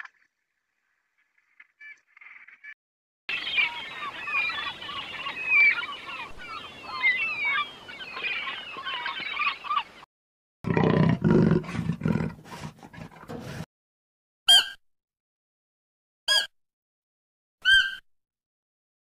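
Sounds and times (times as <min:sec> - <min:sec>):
birds chirping: 0:03.3 - 0:10.1
big cat roaring: 0:10.7 - 0:13.6.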